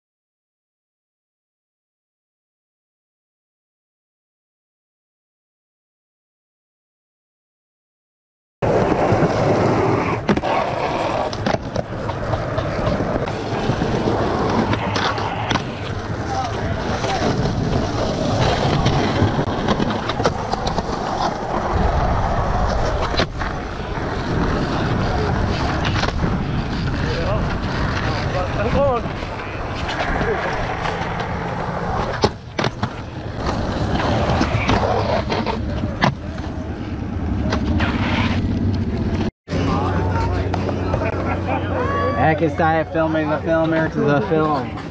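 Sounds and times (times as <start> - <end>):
skateboard clacks: 8.6 - 21.8
skateboard wheels on concrete: 8.6 - 44.9.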